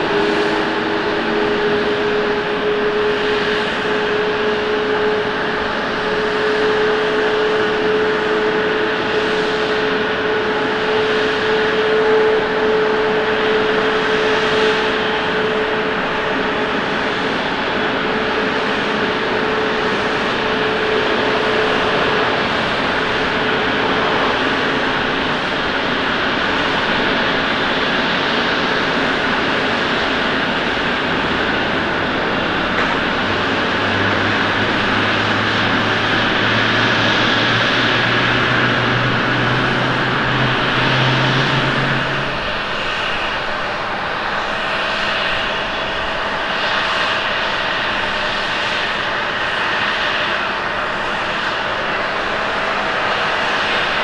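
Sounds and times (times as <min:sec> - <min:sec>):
jet engines landing rollout: 0:00.0 - 0:54.0
jet noise on approach: 0:00.0 - 0:54.0.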